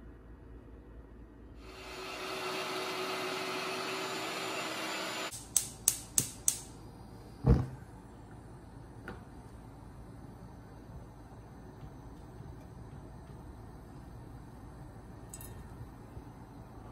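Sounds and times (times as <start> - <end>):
electric meat grinder running: 1.6 - 5.3.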